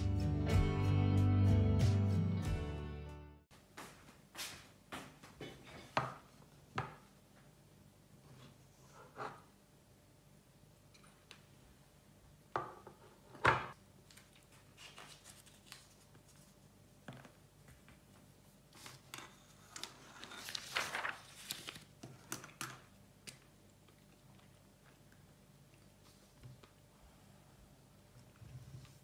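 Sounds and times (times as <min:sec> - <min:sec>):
rustling and scraping: 0:18.7 - 0:21.8.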